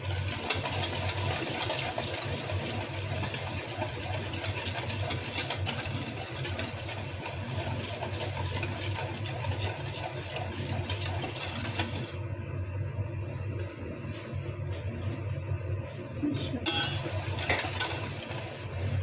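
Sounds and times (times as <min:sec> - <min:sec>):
whisk rattling in metal bowl: 0:00.0 - 0:12.2, 0:16.6 - 0:18.8
steady low hum: 0:10.7 - 0:19.0.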